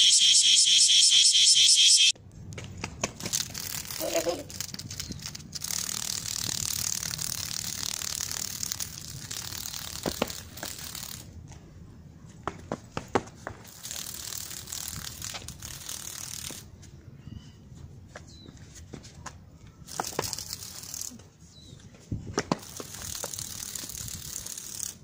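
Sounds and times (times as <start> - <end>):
cicada buzzing: 0.0 - 2.1, 3.6 - 11.2, 13.7 - 16.6, 22.6 - 25.0.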